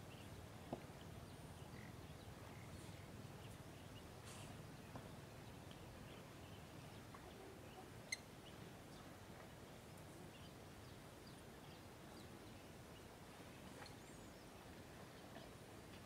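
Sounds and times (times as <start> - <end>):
faint bird chirps: 5.5 - 9.1.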